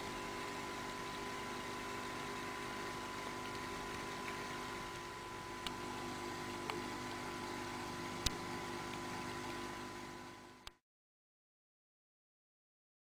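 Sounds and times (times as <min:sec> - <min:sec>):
aquarium pump humming: 0:00.0 - 0:10.8
small clicks: 0:08.2 - 0:09.7.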